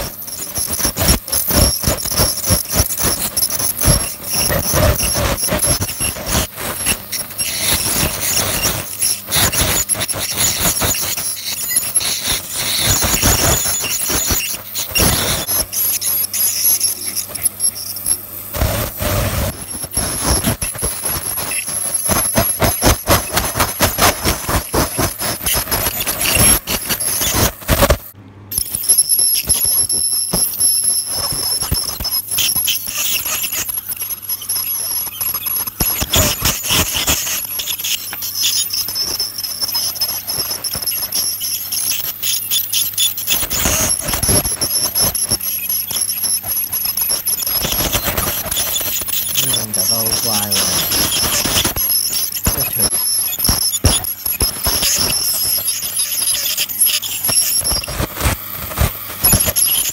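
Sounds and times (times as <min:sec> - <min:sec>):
dental scaler high-pitched whine: 0:00.0 - 0:59.9
scraping clicks on teeth: 0:28.6 - 0:59.9.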